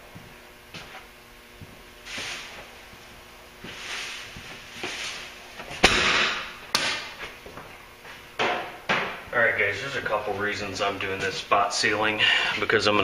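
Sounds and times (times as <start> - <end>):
compressed air hissing: 2.0 - 2.8.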